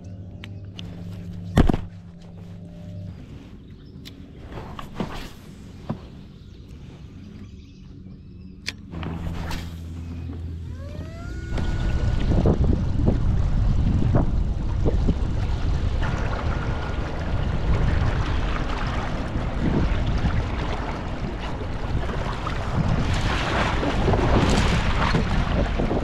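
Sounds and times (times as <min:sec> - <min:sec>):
water splashing along hull: 0:08.9 - 0:26.0
wind buffeting microphone: 0:08.9 - 0:26.0.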